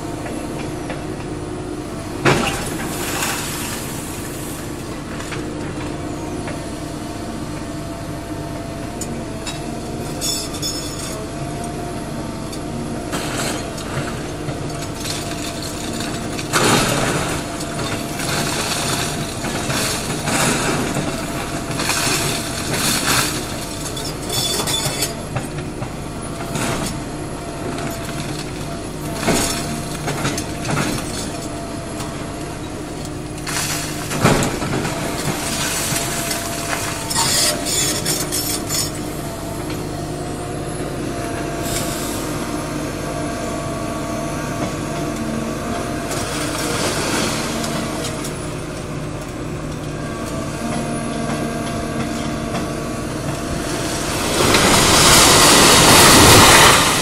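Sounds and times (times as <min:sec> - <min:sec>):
excavator diesel engine running: 0:00.0 - 0:57.0
falling brick and rubble crashing: 0:14.8 - 0:25.0, 0:53.8 - 0:57.0.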